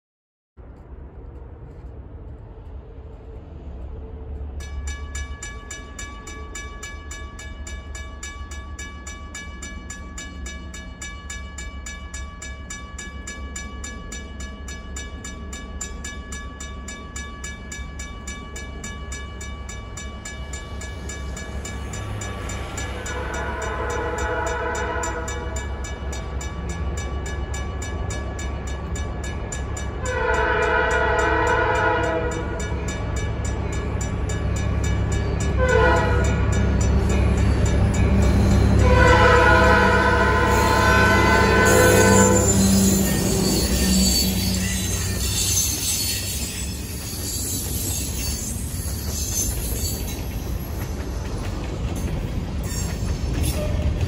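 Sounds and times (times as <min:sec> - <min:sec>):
railroad crossing bell ringing: 0:04.6 - 0:54.0
locomotive horn blasts: 0:23.0 - 0:25.6, 0:30.0 - 0:32.6, 0:35.6 - 0:36.5, 0:38.6 - 0:44.6
locomotive engine rumble: 0:28.8 - 0:54.0.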